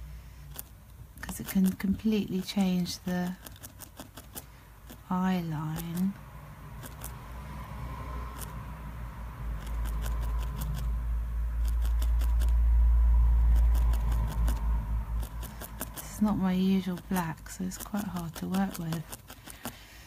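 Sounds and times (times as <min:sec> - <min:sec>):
felting needle clicking: 0:00.5 - 0:06.2, 0:15.2 - 0:19.8
low rumble: 0:06.2 - 0:16.6.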